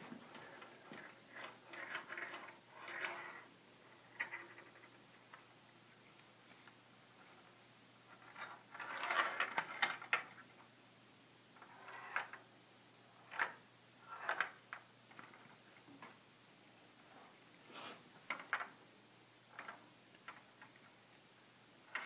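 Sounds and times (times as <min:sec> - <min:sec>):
steel ball rolling in plastic maze: 0:00.3 - 0:05.5, 0:08.1 - 0:10.5, 0:11.6 - 0:15.9, 0:19.4 - 0:21.0.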